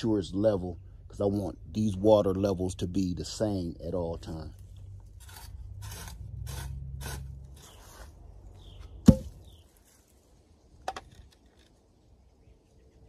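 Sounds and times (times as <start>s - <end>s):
shovel scraping dry soil: 4.7s - 8.8s
loud sharp knock: 9.0s - 9.4s.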